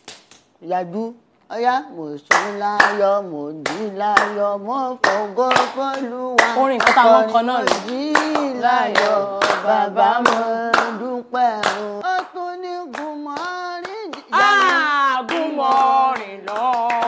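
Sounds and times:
hand clapping: 0.0 - 0.5, 2.3 - 4.4, 5.0 - 11.0, 11.6 - 17.0
group singing: 2.6 - 17.0.

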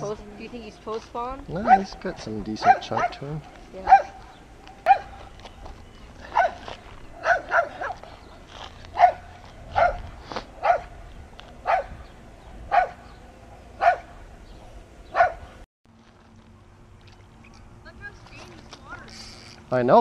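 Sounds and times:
high-pitched animal calls: 19.0 - 19.7.

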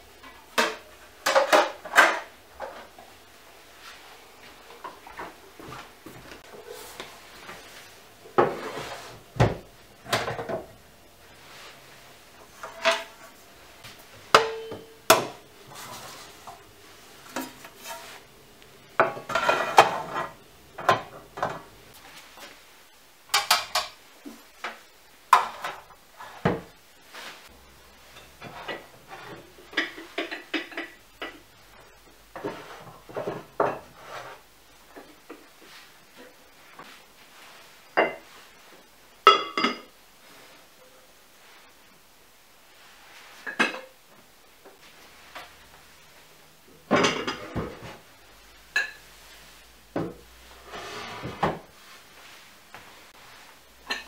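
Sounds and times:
pots and jars clinking on shelves: 0.1 - 3.2, 4.6 - 11.7, 12.4 - 13.4, 14.1 - 22.0, 23.3 - 26.8, 28.0 - 36.4, 37.9 - 38.4, 39.2 - 40.0, 43.4 - 45.8, 46.7 - 49.2, 49.9 - 51.8, 53.8 - 54.0.

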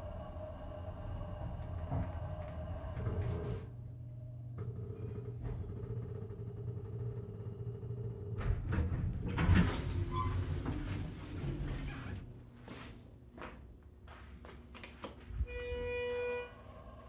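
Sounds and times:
elevator car humming: 0.0 - 12.4, 15.7 - 17.0
elevator doors sliding open: 8.2 - 12.3.

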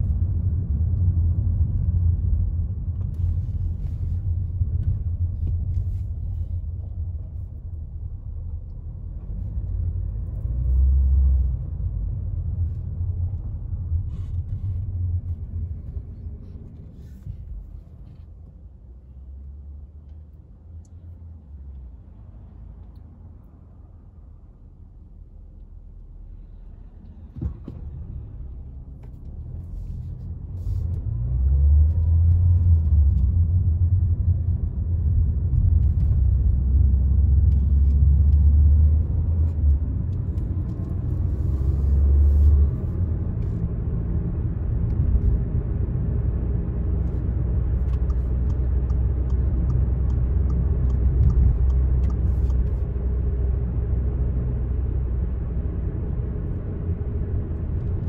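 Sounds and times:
car cabin rumble: 31.8 - 58.0
click: 47.8 - 52.7.

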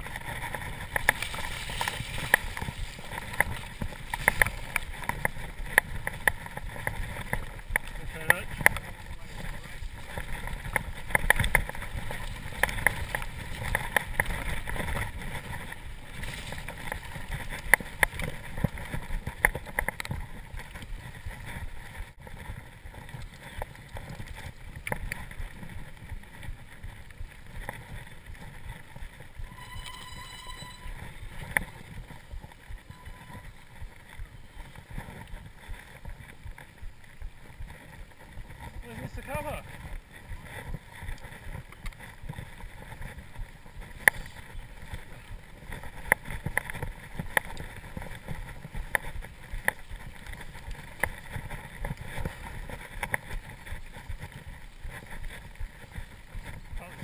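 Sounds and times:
bike rattling and knocking: 0.0 - 29.5, 31.2 - 57.0
tyres crunching on loose stones: 0.0 - 29.5, 31.2 - 57.0
high whine: 29.4 - 34.0.

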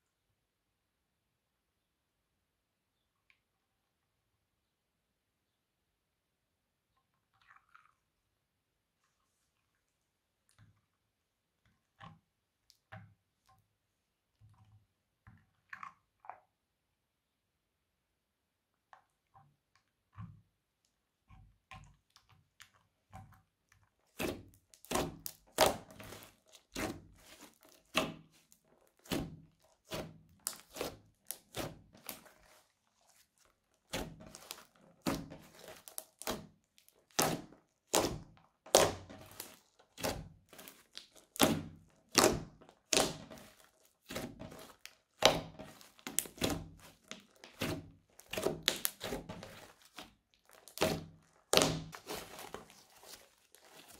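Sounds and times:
crunchy slime crackling pops: 24.2 - 53.9.

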